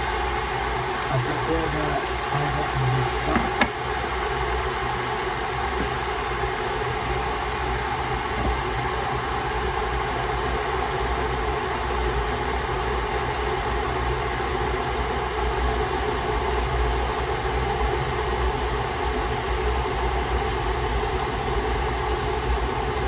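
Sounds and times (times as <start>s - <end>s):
machine humming: 0.0s - 9.4s.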